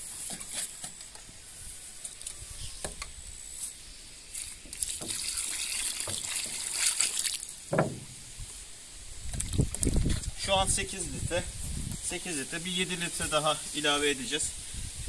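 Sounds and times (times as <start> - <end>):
water pouring into bucket: 4.3 - 7.7.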